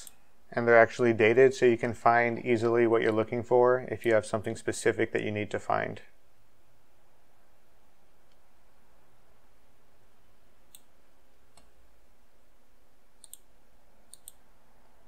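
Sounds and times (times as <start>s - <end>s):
low steady hiss: 0.0s - 15.0s
faint mouse clicks: 13.2s - 13.5s, 14.1s - 14.4s.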